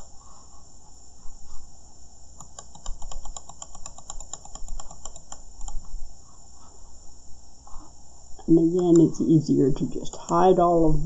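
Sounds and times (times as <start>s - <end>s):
steady high-pitched hiss: 0.0s - 11.0s
rapid computer mouse clicks: 2.4s - 5.9s, 8.7s - 9.2s.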